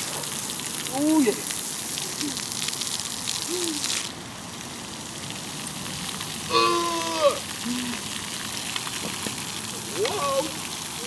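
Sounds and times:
water jets spraying: 0.0 - 11.0
high voice calling out: 6.5 - 8.0, 9.9 - 10.6.

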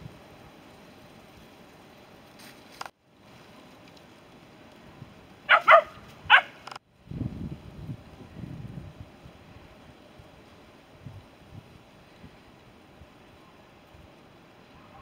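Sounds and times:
wind rumble on microphone: 0.0 - 2.0, 4.2 - 15.0
dog barking: 5.5 - 6.6.

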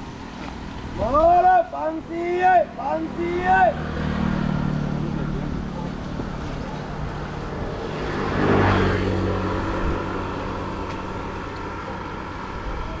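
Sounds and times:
motor vehicle engine running: 2.6 - 13.0.

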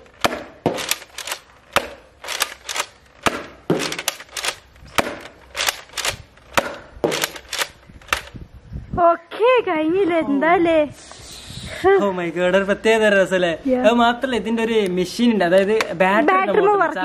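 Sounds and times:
toy blaster firing snapping shots: 0.2 - 8.3.

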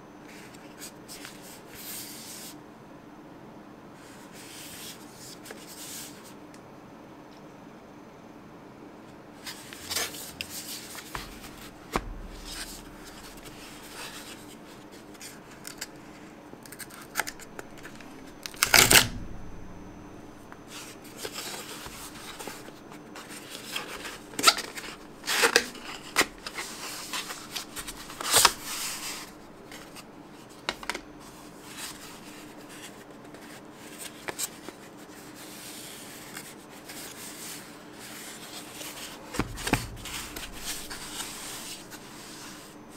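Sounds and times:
cardboard rustling and scraping: 9.4 - 19.8, 20.5 - 42.9.

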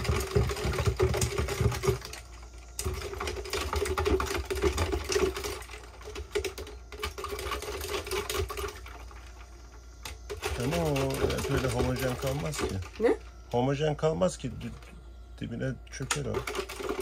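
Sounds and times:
spoon rattling in plastic bottle: 0.0 - 9.2, 10.3 - 13.0, 16.2 - 17.0
steady low hum: 0.0 - 17.0.

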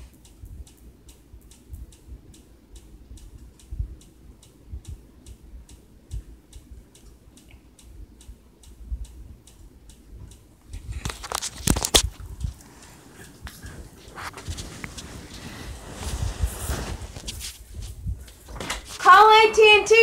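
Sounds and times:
quick even ticking: 0.0 - 15.0
dull low thumps: 1.3 - 6.8, 15.3 - 18.9.

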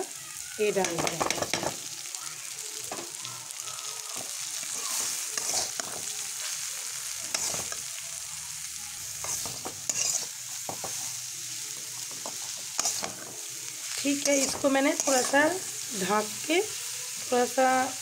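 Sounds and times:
cabbage sizzling in a wok: 0.0 - 18.0
metal spatula scraping wok: 4.4 - 6.6, 7.2 - 8.0, 9.0 - 16.3.

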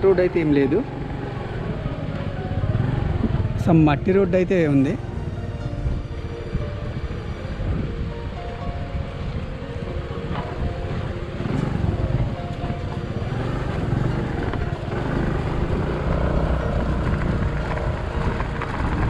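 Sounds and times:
scooter engine running: 0.0 - 4.3, 8.8 - 19.0
wind rumbling on microphone: 0.8 - 19.0.

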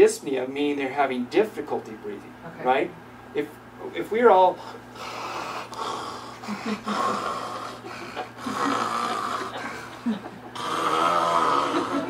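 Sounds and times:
person snoring: 5.0 - 12.0.

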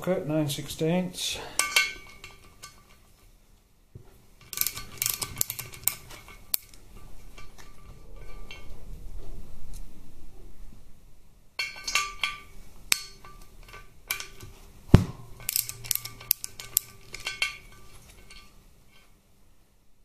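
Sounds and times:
metal tools clinking on engine: 15.4 - 18.6.

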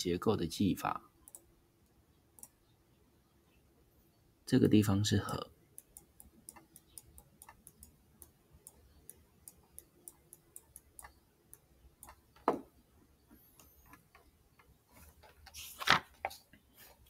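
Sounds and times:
stylus tapping tablet screen: 5.7 - 15.5.

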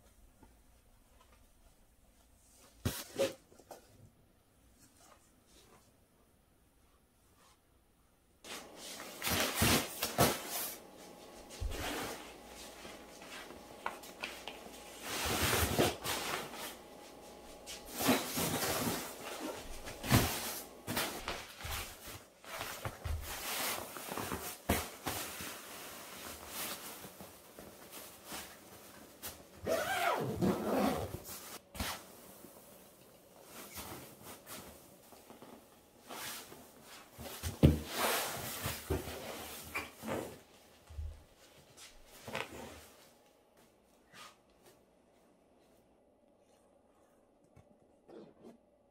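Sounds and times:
fabric rustling: 8.5 - 46.6.

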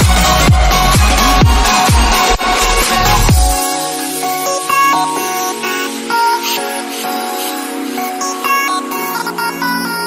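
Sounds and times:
kick drum beats: 0.0 - 3.7
electronic dance music: 0.0 - 10.0.

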